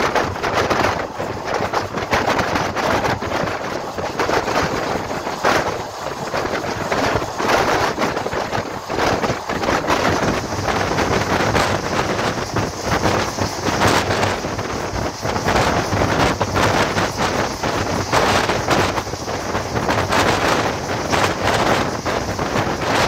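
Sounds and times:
train wheels rumbling on rails: 0:00.0 - 0:23.0
wind buffeting microphone: 0:00.0 - 0:23.0.

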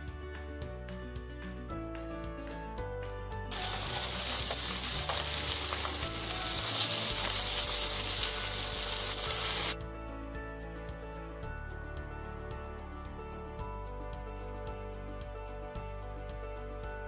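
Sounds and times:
fish sizzling in hot oil: 0:03.5 - 0:09.8.

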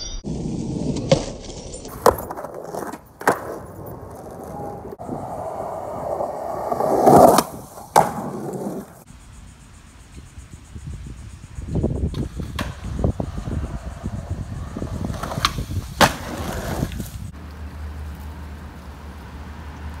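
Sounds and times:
skateboard wheels rolling on concrete: 0:00.2 - 0:20.0
skateboard clacking on ground: 0:00.9 - 0:09.0, 0:12.1 - 0:17.1.

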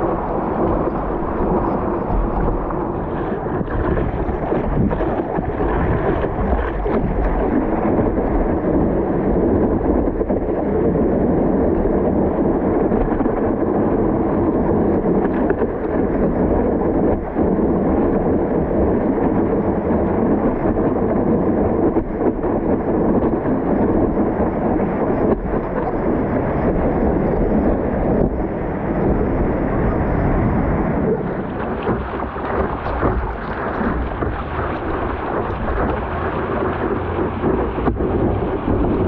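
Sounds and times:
water rushing: 0:00.0 - 0:09.4, 0:30.8 - 0:39.0
wind noise: 0:00.0 - 0:39.0.

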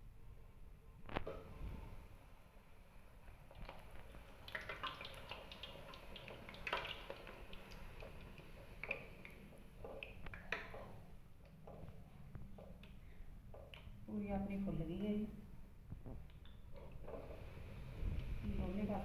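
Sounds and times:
oil crackling and popping: 0:03.4 - 0:10.9.

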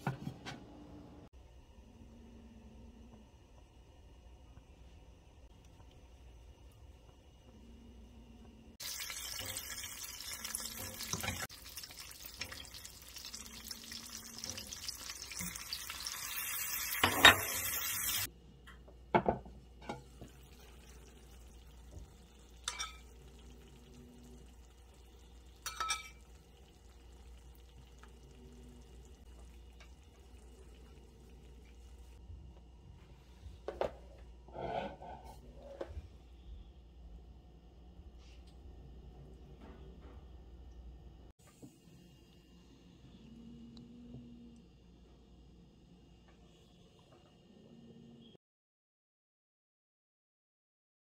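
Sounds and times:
butter sizzling in a frying pan: 0:08.8 - 0:18.3, 0:20.2 - 0:32.2.

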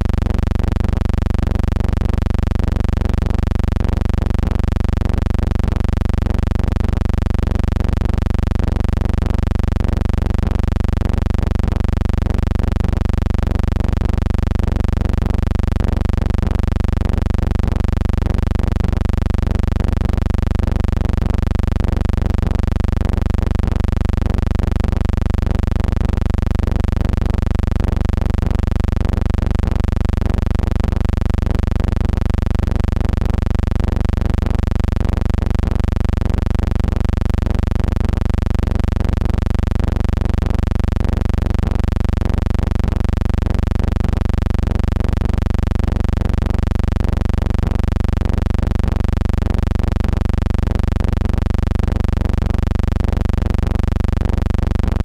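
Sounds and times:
steady low hum with buzz: 0:00.0 - 0:55.0.

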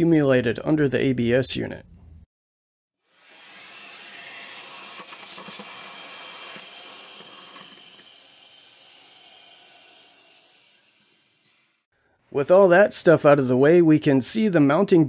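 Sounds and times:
vacuum cleaner suction hiss: 0:03.1 - 0:11.8.

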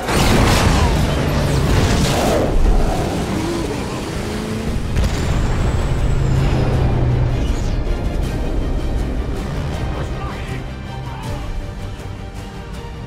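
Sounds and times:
loud explosion: 0:00.0 - 0:10.2
vehicle engines running: 0:00.9 - 0:10.9.

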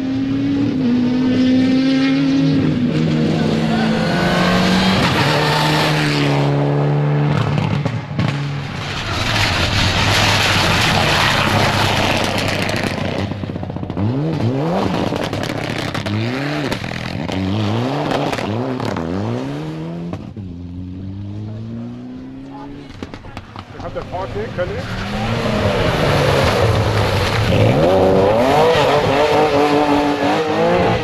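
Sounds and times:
rally car engine revving: 0:00.0 - 0:31.0
tyres on gravel: 0:22.6 - 0:28.6.

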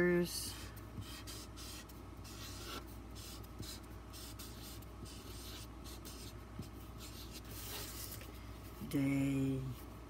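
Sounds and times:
steady low hum: 0:00.0 - 0:10.0
marker scratching on card: 0:01.0 - 0:08.2.

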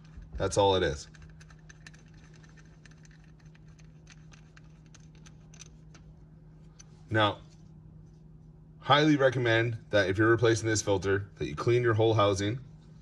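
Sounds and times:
low hum: 0:00.0 - 0:13.0
metal tool clicking and scratching: 0:01.0 - 0:06.1.

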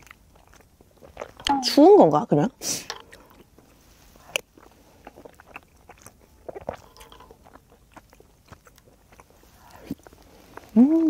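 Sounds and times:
quiet chewing: 0:00.0 - 0:11.0.

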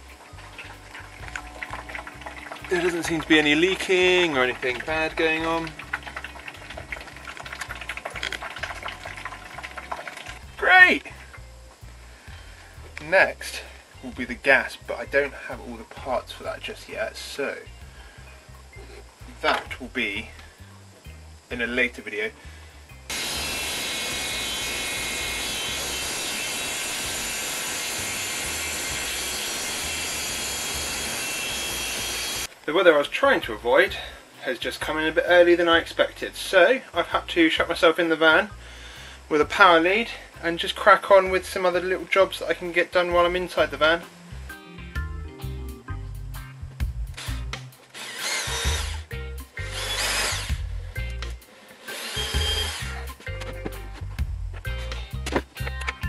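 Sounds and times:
hammer drill motor whine: 0:23.1 - 0:32.5, 0:47.2 - 0:50.8, 0:51.8 - 0:53.1
table saw cutting wood: 0:23.1 - 0:32.5, 0:47.2 - 0:50.7, 0:51.8 - 0:53.1.

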